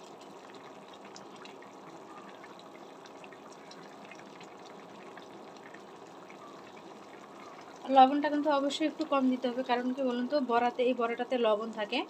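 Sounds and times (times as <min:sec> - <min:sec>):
curry simmering with pops: 0:00.0 - 0:12.0.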